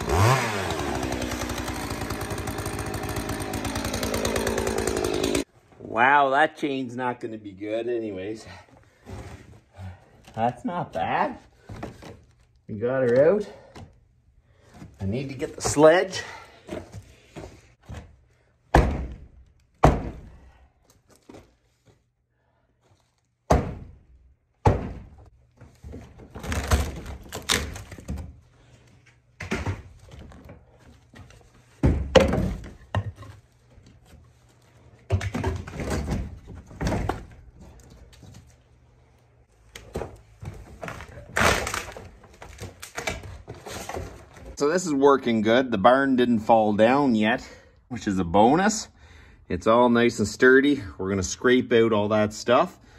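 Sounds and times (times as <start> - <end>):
sledgehammer thuds on timber: 18.7 - 20.4, 23.5 - 24.0, 24.6 - 25.2.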